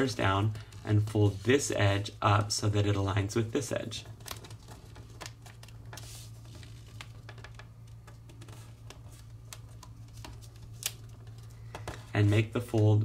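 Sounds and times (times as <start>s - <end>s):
paper crackling while folded: 3.6s - 13.0s
paper rustle: 4.0s - 13.0s.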